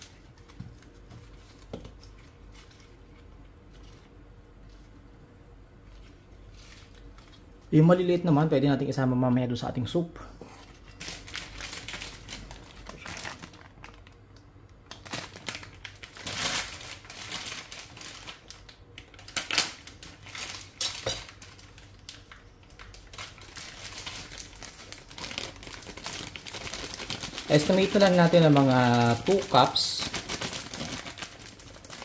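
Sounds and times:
plastic bag crinkling: 11.0 - 32.0.

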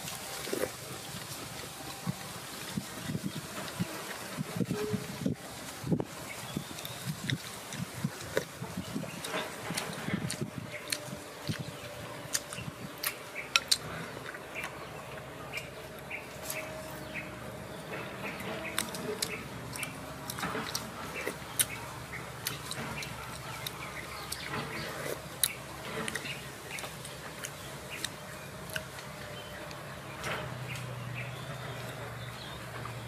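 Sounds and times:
slurping and chewing: 6.3 - 17.2, 18.2 - 29.7.

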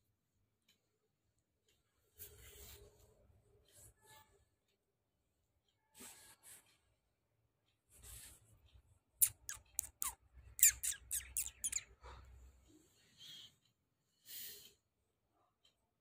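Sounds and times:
bird chirping: 9.2 - 12.2.

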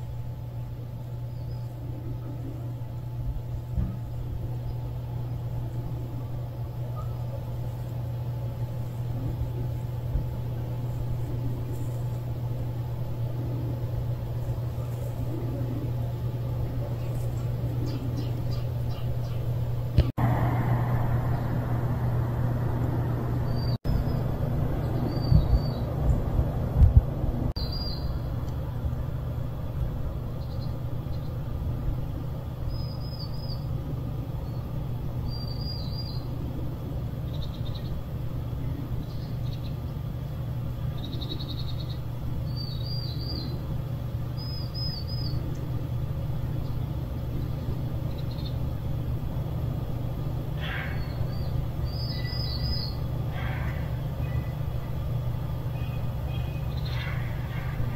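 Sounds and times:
steady low rumble: 0.0 - 57.9
small birds chirping: 0.6 - 20.1, 22.8 - 26.4, 27.6 - 29.2, 30.0 - 49.2, 50.3 - 57.9.

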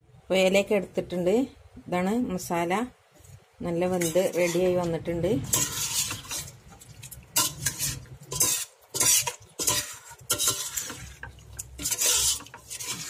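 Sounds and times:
metal spoon scraping a pot: 3.9 - 13.0.

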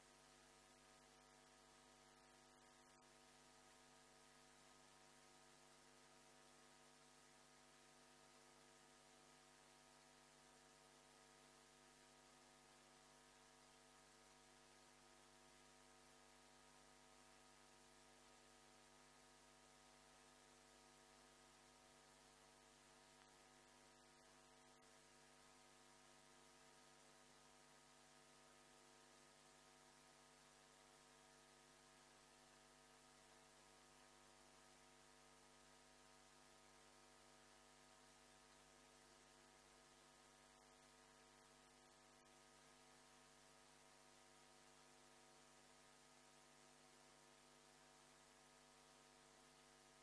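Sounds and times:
faint electrical hum: 0.0 - 50.0
light hiss: 21.4 - 26.5.

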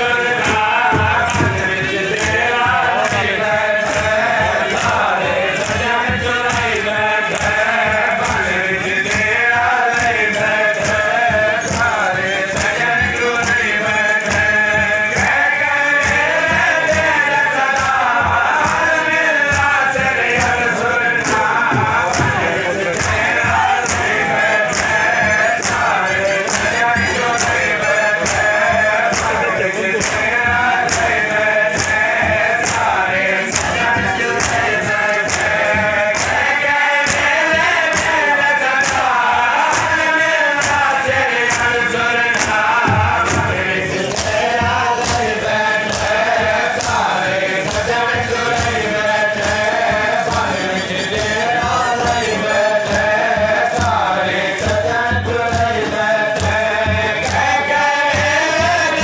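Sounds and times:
men chanting: 0.0 - 59.0
hands slapping chests: 21.2 - 52.2.

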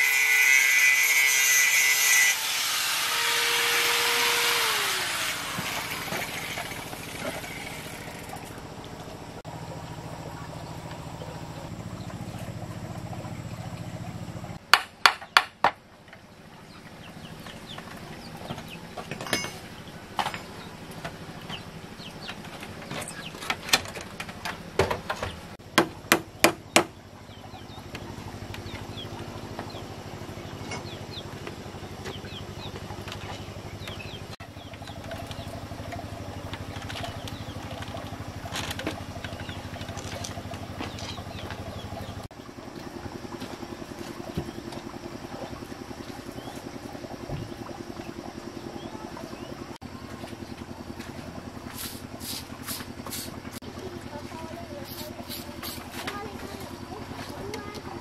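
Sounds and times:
steady low hum: 4.0 - 14.7
hand tool knocking on bamboo: 25.8 - 27.0.

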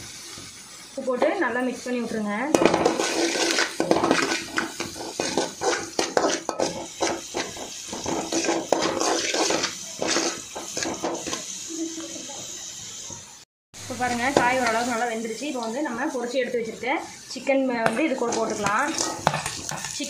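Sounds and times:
oil sizzling: 0.0 - 20.0
metal spatula scraping a pan: 1.2 - 11.6, 17.8 - 20.0.

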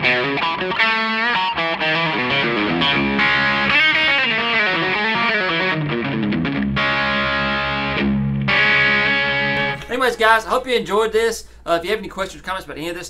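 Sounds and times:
distorted electric guitar lead: 0.0 - 9.9.

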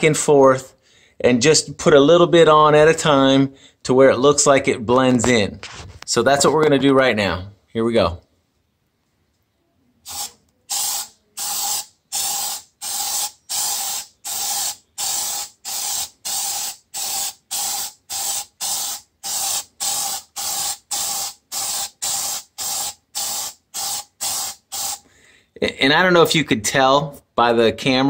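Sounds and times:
aerosol can spraying in hissing bursts: 10.0 - 25.1.

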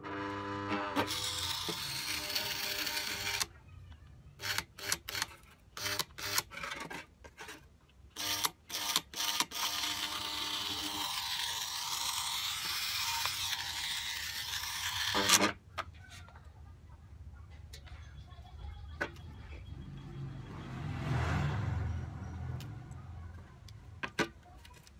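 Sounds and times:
gear motor whirring: 0.0 - 3.5, 8.2 - 15.6.

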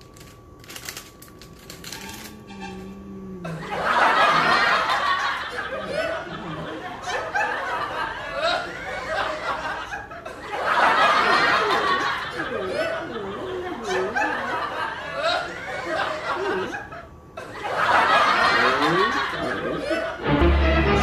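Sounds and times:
plastic wrapper crinkling: 0.0 - 2.5
loud continuous laughter: 3.4 - 20.3.

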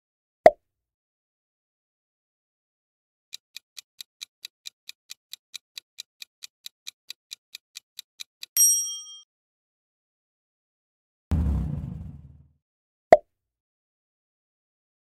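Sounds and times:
clock ticking timer: 3.3 - 8.6.

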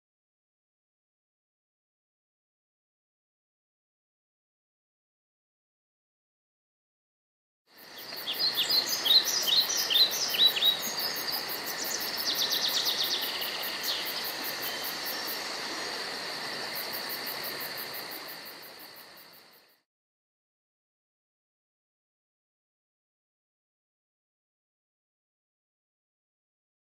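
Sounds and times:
insects humming: 7.7 - 19.8
birds chirping: 7.8 - 15.6.

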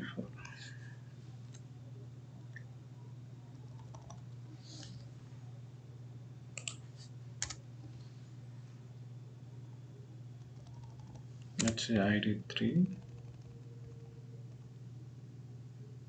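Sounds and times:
low hum: 0.0 - 16.0
keyboard clicks: 3.7 - 4.2, 6.6 - 6.8, 10.4 - 11.8.

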